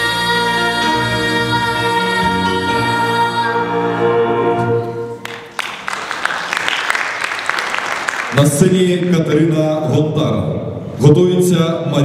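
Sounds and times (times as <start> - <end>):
musical accompaniment: 0.0 - 6.7
audience applause: 5.2 - 8.6.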